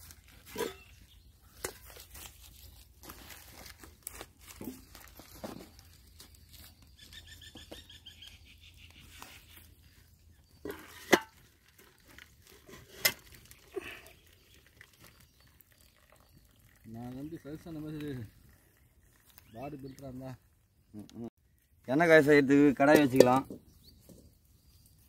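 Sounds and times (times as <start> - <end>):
metal pot clanks: 0.5 - 1.0, 10.6 - 11.8
leaves rustling: 1.5 - 7.4.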